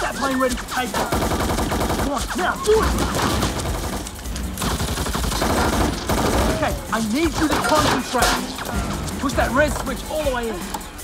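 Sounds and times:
automatic rifle fire: 1.0s - 6.7s.

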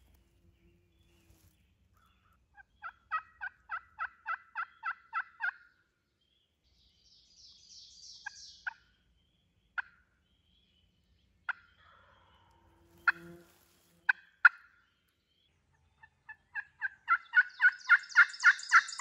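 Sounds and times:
turkey calling: 2.2s - 5.7s, 8.2s - 8.8s, 14.1s - 14.7s, 16.0s - 19.0s.

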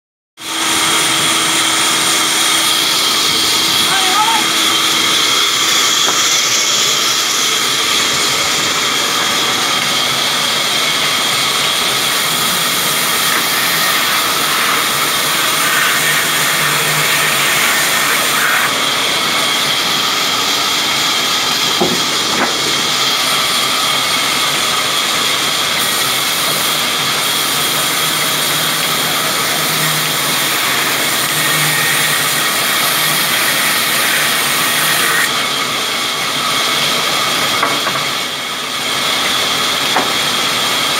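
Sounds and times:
band saw running: 0.4s - 40.9s.

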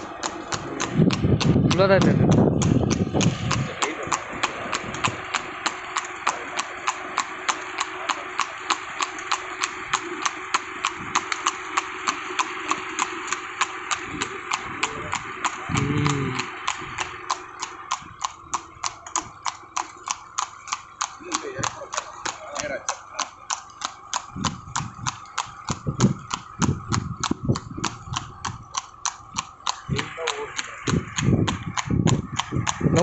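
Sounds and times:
hooves clip-clopping on asphalt: 0.0s - 33.0s
person calling out: 15.7s - 16.6s.

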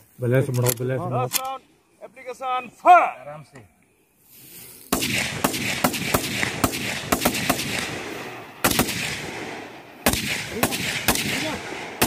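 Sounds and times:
rifle shots with echo: 4.9s - 12.0s.

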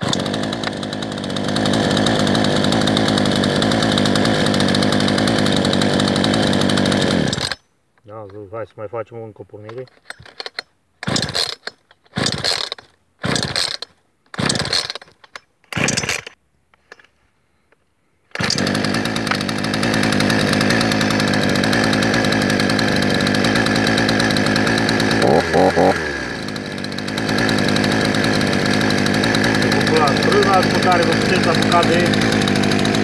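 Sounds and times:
chainsaw engine running: 0.0s - 7.6s, 11.0s - 11.6s, 12.2s - 15.1s, 15.7s - 16.3s, 18.3s - 33.0s
recoil starter pulls: 0.0s - 7.6s, 9.6s - 17.1s, 18.3s - 33.0s.

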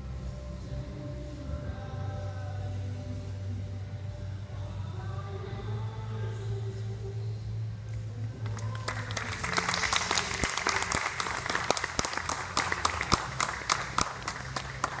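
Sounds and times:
dance music: 0.0s - 15.0s
audience clapping: 8.4s - 15.0s.

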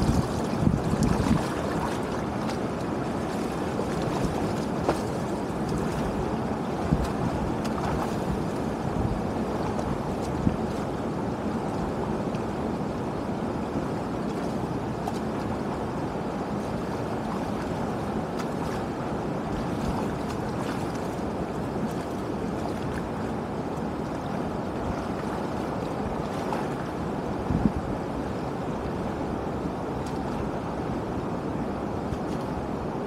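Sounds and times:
wading footsteps splashing: 0.0s - 11.0s, 14.2s - 15.8s, 16.4s - 27.8s, 29.9s - 30.6s
shallow water rushing: 0.0s - 33.0s.

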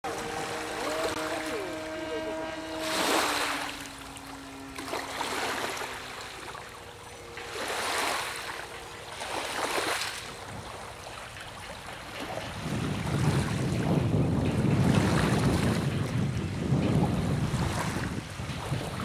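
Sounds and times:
lake waves washing on shore: 0.0s - 19.0s
faint steady hum: 0.1s - 12.3s.

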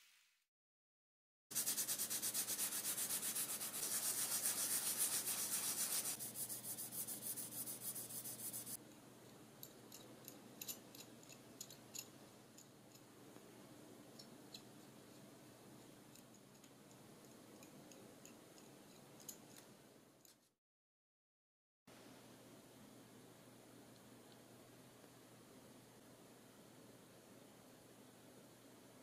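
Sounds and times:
sandpaper rubbing back and forth: 1.5s - 8.8s.

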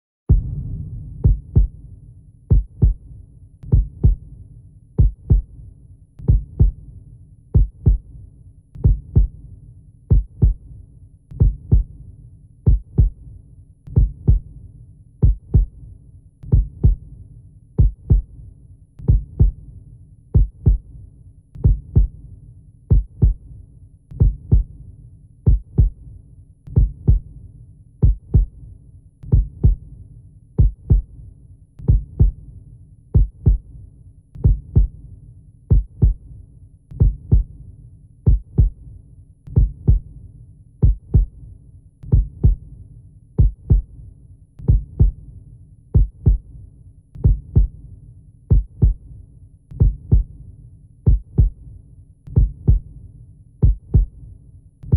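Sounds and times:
heartbeat double thump: 0.3s - 3.0s, 3.8s - 4.2s, 39.6s - 40.0s
steady low hum: 0.3s - 3.2s.

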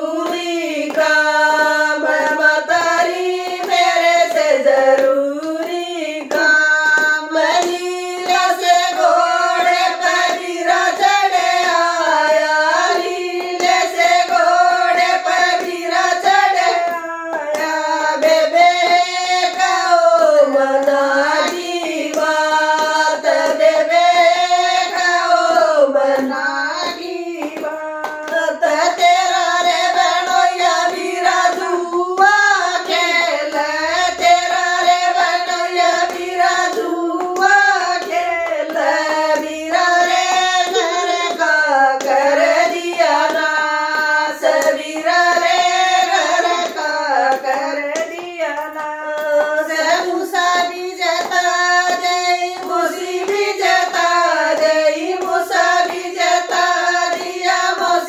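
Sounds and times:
hand clapping: 0.0s - 58.0s
women singing folk song: 0.0s - 58.0s.

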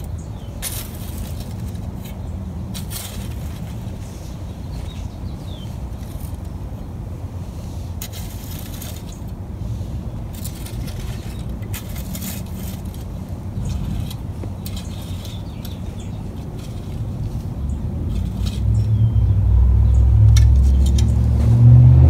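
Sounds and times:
stones scraping against metal tools: 0.0s - 4.2s, 4.8s - 6.6s, 8.0s - 9.4s, 10.2s - 19.0s
low rumble: 17.2s - 22.0s.

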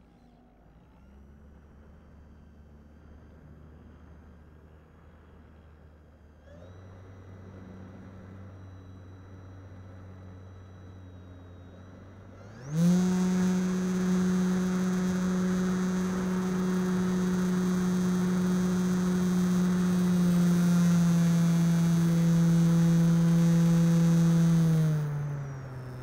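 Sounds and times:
model plane motor droning: 6.4s - 26.0s.

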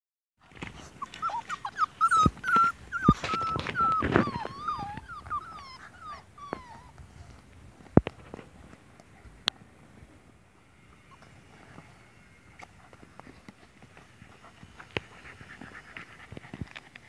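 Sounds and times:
puppies whining: 0.5s - 7.4s.

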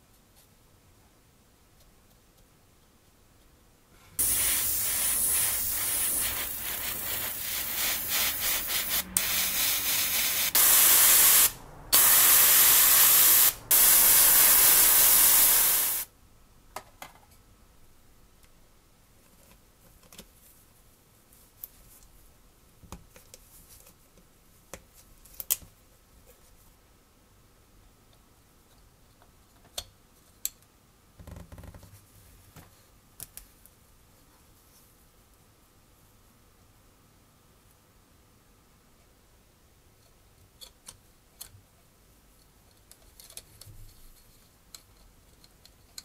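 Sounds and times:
pressurized spray hissing: 4.2s - 16.1s.

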